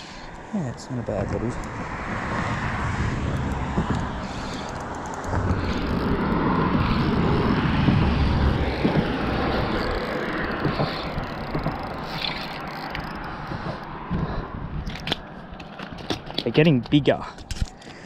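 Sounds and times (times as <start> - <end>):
vehicle rumbling past on bridge: 1.0 - 14.7
small clicks: 3.4 - 7.2, 8.7 - 13.8.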